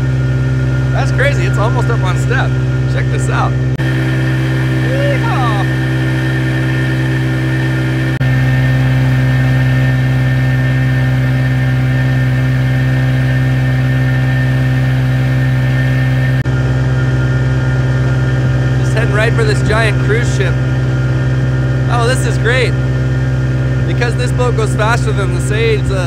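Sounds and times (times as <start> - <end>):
boat engine running under load: 0.0 - 26.0.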